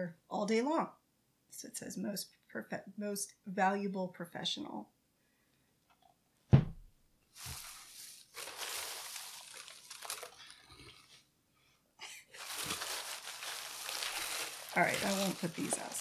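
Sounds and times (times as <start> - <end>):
packing fill rustling and crackling: 7.4 - 11.2, 12.3 - 16.0.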